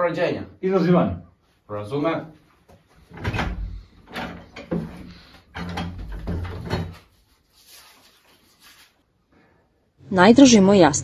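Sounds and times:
wooden door opening and shutting: 3.0 - 7.1
paper rustling: 6.3 - 9.1.

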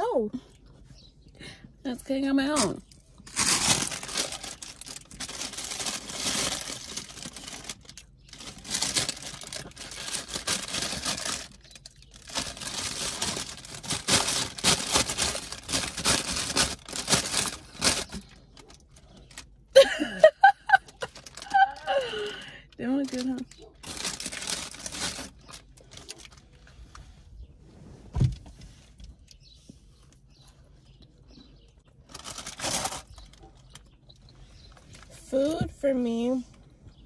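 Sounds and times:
paper bag crinkling and rustling: 2.5 - 19.6, 20.7 - 26.6, 32.0 - 33.9, 34.7 - 35.6.

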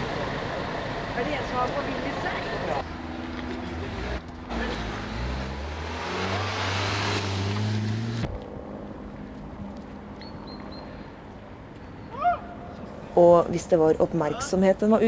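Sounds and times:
vehicle engine accelerating: 0.0 - 9.9
tyre and road noise: 0.0 - 15.0.

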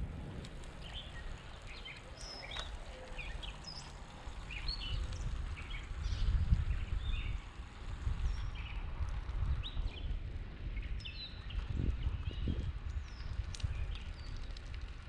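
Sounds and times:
wind rumble on microphone: 0.0 - 15.0
birds chirping: 0.7 - 7.4.

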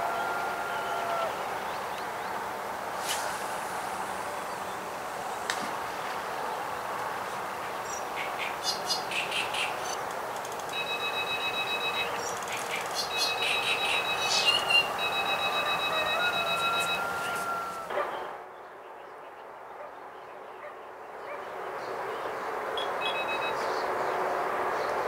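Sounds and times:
bite alarms beeping: 10.7 - 17.9, 22.8 - 23.7.

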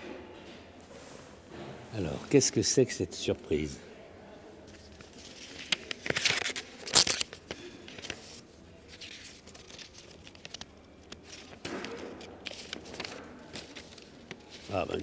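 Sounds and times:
paper rustling and crinkling: 4.7 - 15.0.

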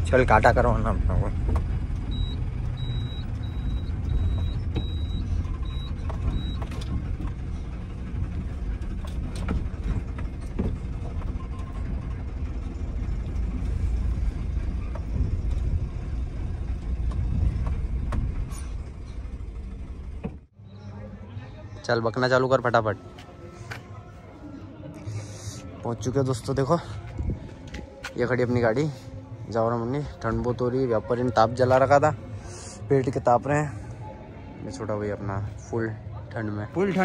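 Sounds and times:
truck engine and road noise: 0.0 - 37.0
high electronic beep: 2.1 - 6.6.

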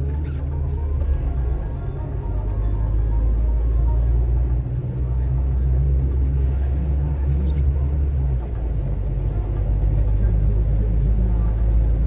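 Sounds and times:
car engine rumble: 0.0 - 12.0
road noise: 0.0 - 12.0.

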